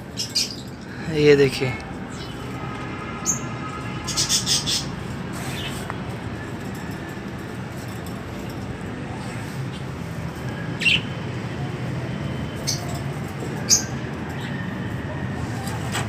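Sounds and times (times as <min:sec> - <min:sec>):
parakeets chirping and squawking: 0:00.0 - 0:05.9, 0:10.8 - 0:11.1, 0:13.6 - 0:14.5.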